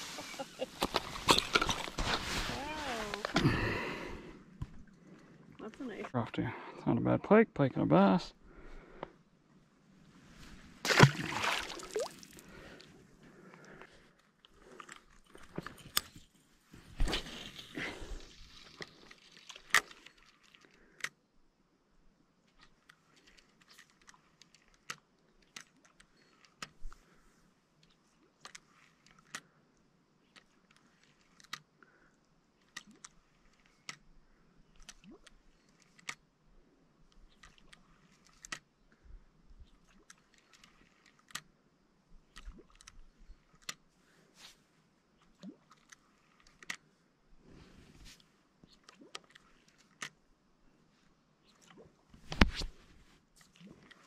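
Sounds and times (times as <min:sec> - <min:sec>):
fishing reel rustling and clicking: 0:17.1 - 0:21.2, 0:22.5 - 0:27.1, 0:27.8 - 0:29.6, 0:30.2 - 0:31.8, 0:32.6 - 0:36.3, 0:37.1 - 0:38.7, 0:39.6 - 0:41.5, 0:42.3 - 0:44.6, 0:45.3 - 0:47.0, 0:48.0 - 0:50.2.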